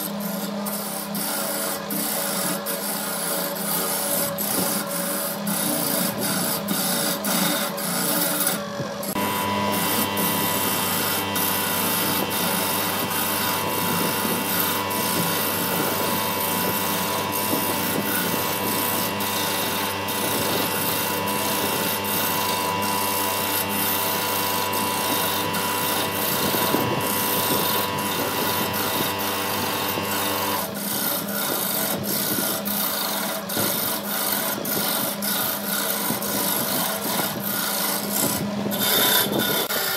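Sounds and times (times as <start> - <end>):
turning tool scraping spinning wood: 0.0 - 39.9
steady hum: 9.0 - 30.7.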